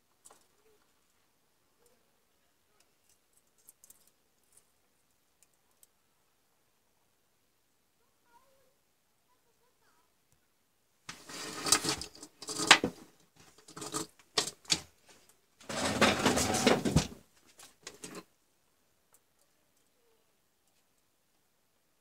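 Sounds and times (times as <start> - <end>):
motor parts clattering: 11.1 - 14.8, 15.6 - 17.2.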